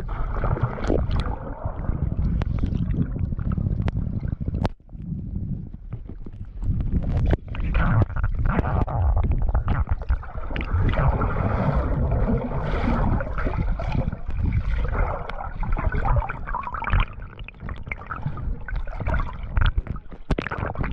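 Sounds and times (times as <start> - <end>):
underwater sloshing and bubbling: 0.0 - 20.9
small knocks and splashes: 13.4 - 20.9.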